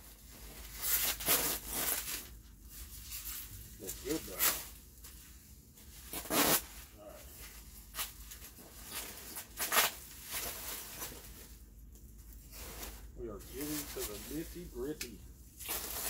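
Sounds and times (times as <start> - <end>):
bubble wrap crinkling: 0.0 - 16.0
bubble wrap ripping: 0.3 - 4.8, 5.9 - 7.1, 7.9 - 11.4, 15.6 - 16.0.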